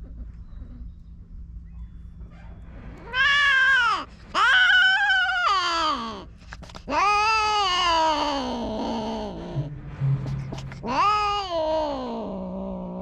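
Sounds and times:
cats caterwauling yowls: 3.0s - 6.3s, 6.9s - 9.6s, 10.8s - 13.0s.

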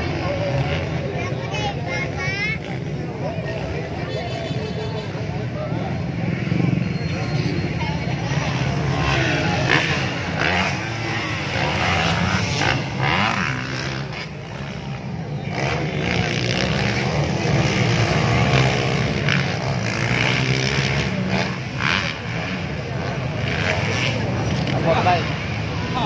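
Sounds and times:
dirt bike engines revving: 0.0s - 26.0s
spectator chatter: 0.0s - 26.0s.

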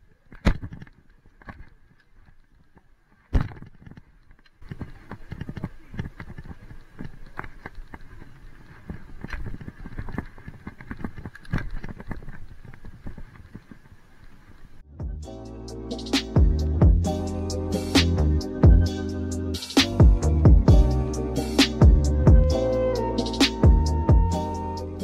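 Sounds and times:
small clicks and rattles: 0.0s - 14.6s
bike rattling on asphalt: 0.0s - 14.8s.

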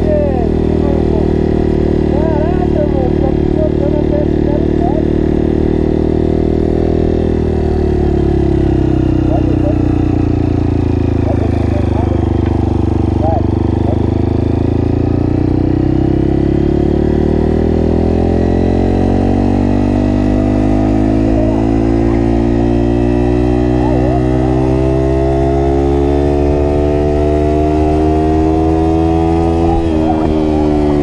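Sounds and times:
dirt bike engine running under load: 0.0s - 31.0s.

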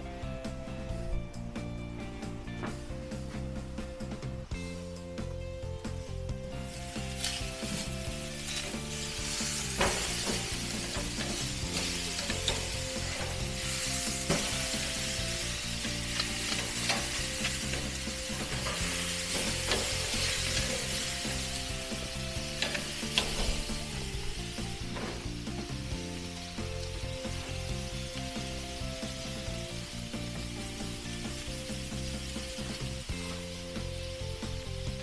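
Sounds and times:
steaks sizzling on a grill: 4.6s - 35.0s
metal tongs scraping a grate: 7.2s - 21.1s, 22.5s - 24.0s.

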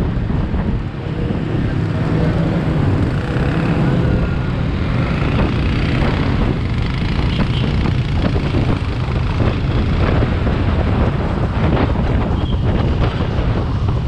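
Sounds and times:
road noise: 0.0s - 14.0s
wind buffeting microphone: 0.0s - 14.0s
scooter engine: 1.5s - 10.4s.

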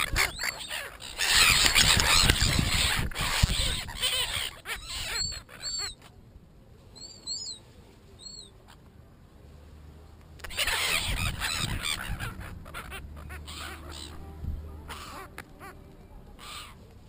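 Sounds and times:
gulls squawking: 0.0s - 6.1s, 10.4s - 15.8s, 16.4s - 16.8s.

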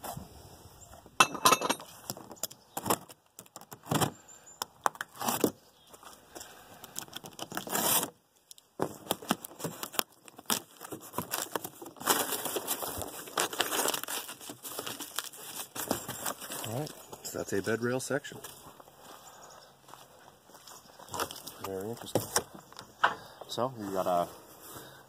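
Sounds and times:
cardboard ripping: 5.1s - 5.6s, 7.2s - 8.2s, 8.8s - 16.8s
cardboard boxes scraping and rustling: 7.5s - 8.1s, 9.4s - 17.0s.

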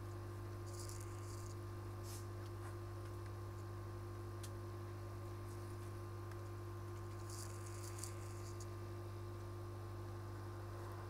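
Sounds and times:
electrical hum: 0.0s - 11.0s
faint scratchy rustle: 0.7s - 2.8s, 7.0s - 8.7s.

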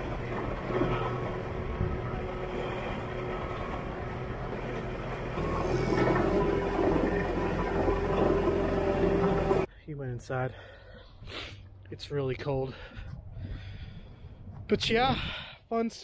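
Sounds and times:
diesel engine running: 0.0s - 9.7s.

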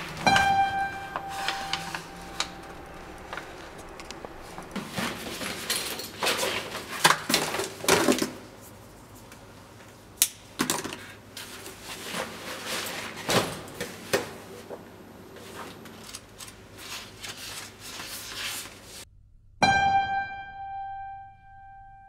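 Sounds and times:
bag and papers rustling: 0.0s - 7.9s, 15.3s - 19.0s
items clicking and knocking: 0.0s - 8.4s.

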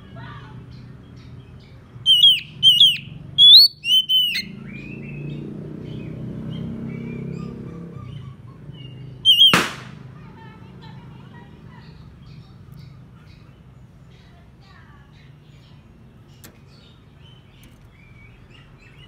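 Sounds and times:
bird whistled calls: 2.0s - 5.3s, 7.0s - 9.8s.

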